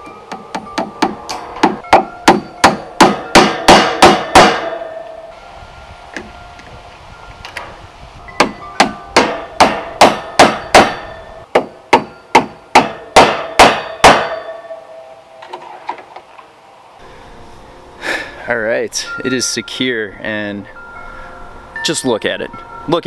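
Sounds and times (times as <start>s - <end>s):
hammer blows on metal staples: 0.3s - 5.1s, 8.4s - 14.6s.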